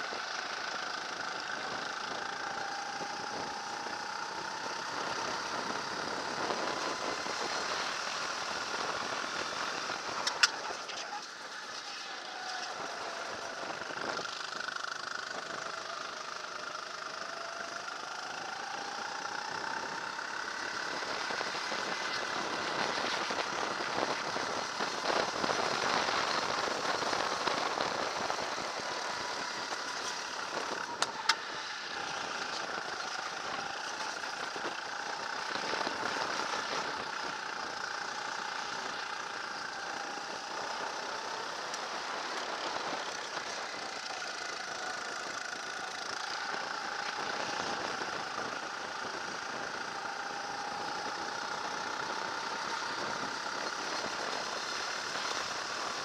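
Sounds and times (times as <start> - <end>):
kart engine running: 0.0 - 56.0.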